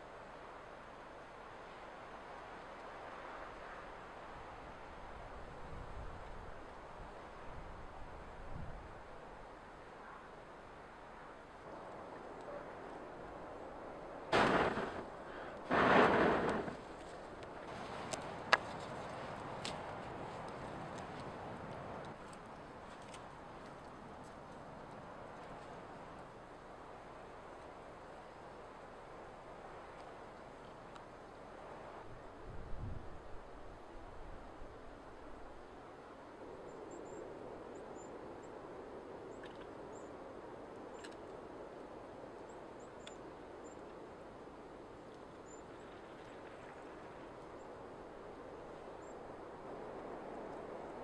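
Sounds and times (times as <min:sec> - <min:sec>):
campfire crackling: 0:11.5 - 0:29.1
steady fire hiss: 0:13.4 - 0:30.6
sharp fire pops: 0:14.3 - 0:18.8.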